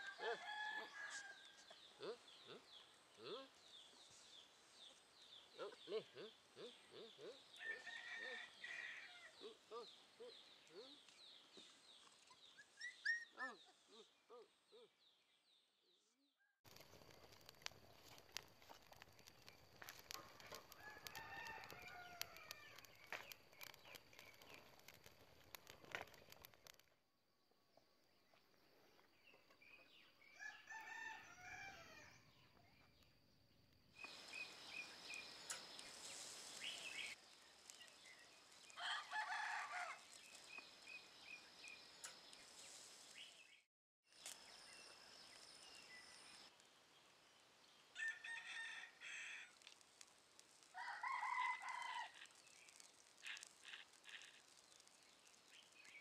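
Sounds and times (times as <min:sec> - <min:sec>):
faint rooster crowing: 0:00.0 - 0:02.2, 0:07.2 - 0:10.0, 0:20.5 - 0:22.9, 0:30.2 - 0:32.3, 0:38.7 - 0:40.2, 0:48.0 - 0:49.6, 0:50.7 - 0:52.4
dry leaves crackling in fire: 0:00.0 - 0:05.6, 0:07.4 - 0:12.8, 0:16.6 - 0:27.0, 0:33.9 - 0:56.0.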